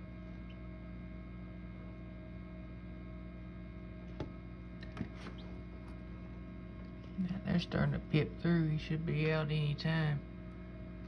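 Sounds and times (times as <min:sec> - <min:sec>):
incubator electrical hum: 0:00.0 - 0:11.0.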